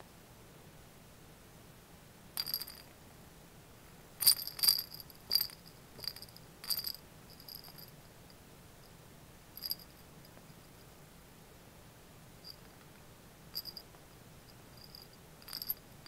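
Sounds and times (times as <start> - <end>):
small bell jingling: 2.4 - 2.9, 4.2 - 8.0, 9.6 - 10.4, 12.4 - 12.7, 13.5 - 13.9, 14.5 - 15.9.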